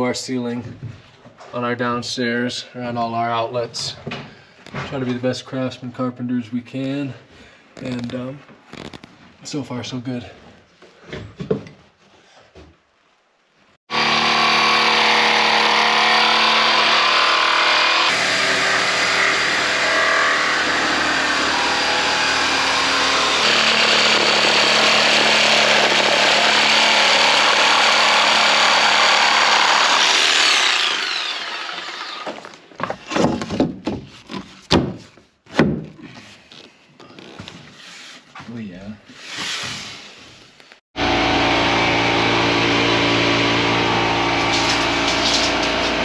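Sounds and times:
knocks and handling sounds: 0:10.4 - 0:13.0, 0:32.2 - 0:40.8
jigsaw cutting wood: 0:13.9 - 0:32.6, 0:41.0 - 0:46.0.

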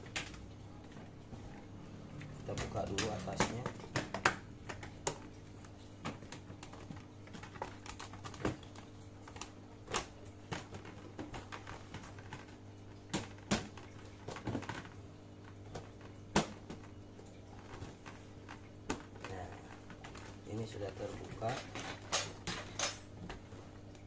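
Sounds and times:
plastic clicks and knocks: 0:02.2 - 0:05.4, 0:21.2 - 0:23.4.

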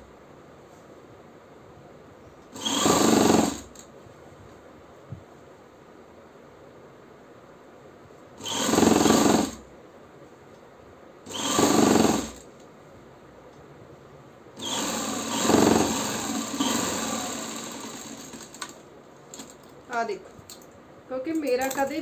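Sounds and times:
sewing machine stitching: 0:02.6 - 0:03.8, 0:08.4 - 0:09.6, 0:11.3 - 0:12.4, 0:14.6 - 0:18.8.

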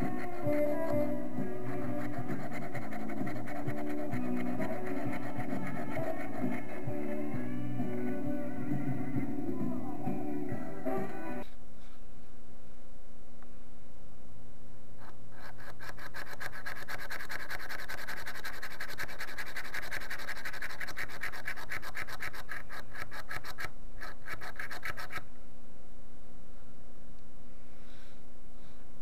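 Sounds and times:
hand drill bit rasping wood: 0:00.0 - 0:06.8, 0:15.0 - 0:25.2.

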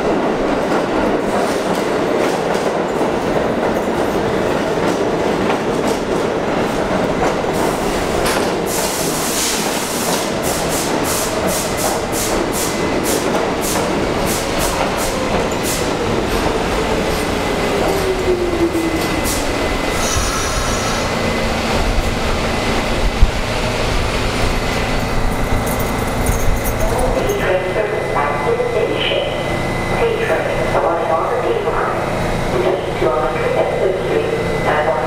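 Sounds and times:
train whine gliding down: 0:11.4 - 0:26.7.

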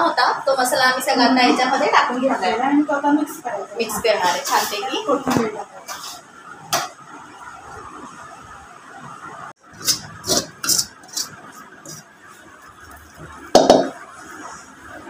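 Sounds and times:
spoon scraping metal plate: 0:09.7 - 0:12.1.

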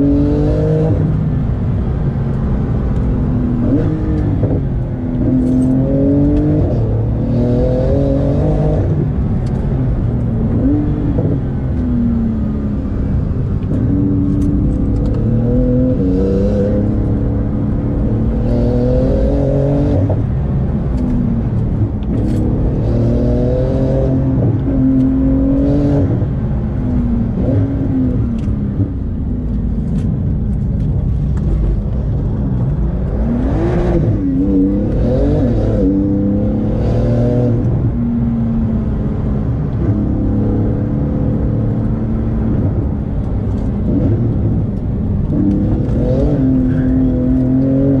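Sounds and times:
car engine revving: 0:00.0 - 0:48.0.

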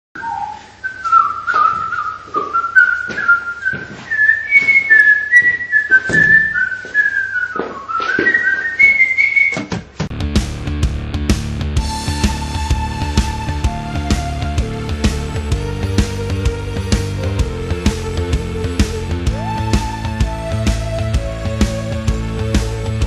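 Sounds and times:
person whistling a tune: 0:00.2 - 0:09.7
rock band with drums: 0:09.9 - 0:23.0.

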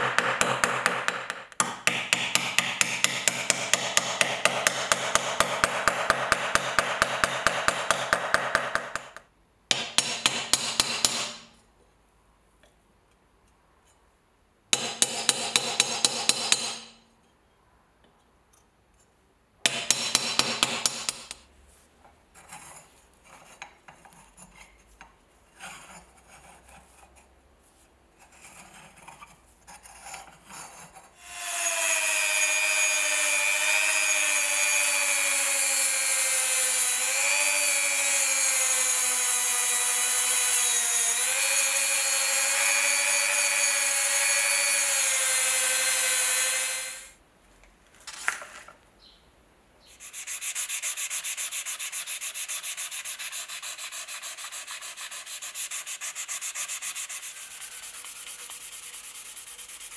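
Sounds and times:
rotary tool whining: 0:31.2 - 0:47.1.

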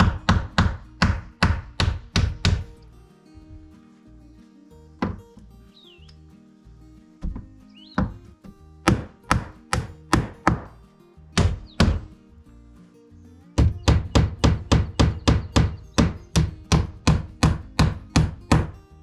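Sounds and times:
hammer driving nails: 0:00.0 - 0:02.7, 0:08.9 - 0:10.8, 0:11.4 - 0:12.1, 0:13.6 - 0:18.8.

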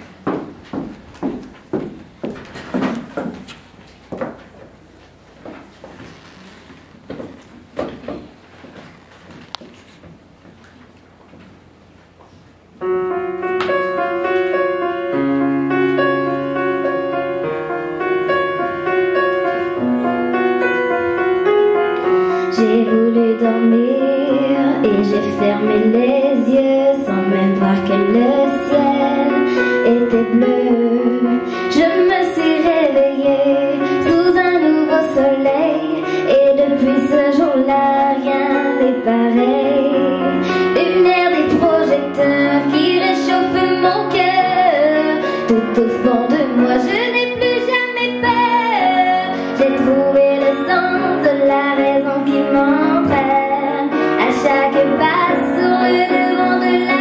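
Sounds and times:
slow grand piano: 0:00.0 - 0:57.0
girl singing: 0:22.3 - 0:57.0.

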